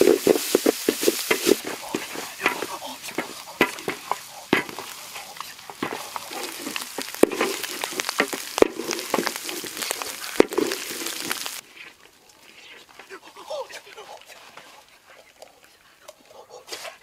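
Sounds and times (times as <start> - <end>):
paste sizzling in hot oil: 0.0 - 11.6
spatula scraping a wok: 0.0 - 12.0
spatula clacking on bowl: 1.3 - 10.6.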